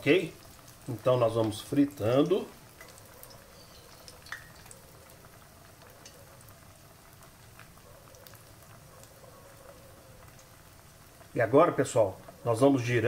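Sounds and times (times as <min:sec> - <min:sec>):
oil sizzling with pops: 0:00.0 - 0:13.0.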